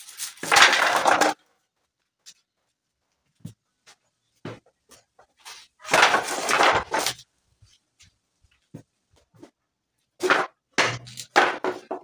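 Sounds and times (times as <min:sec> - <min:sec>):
wooden boards clattering: 0:00.4 - 0:01.4, 0:05.8 - 0:07.2, 0:10.2 - 0:12.0
wooden boards scraping: 0:00.4 - 0:01.4, 0:05.4 - 0:07.2.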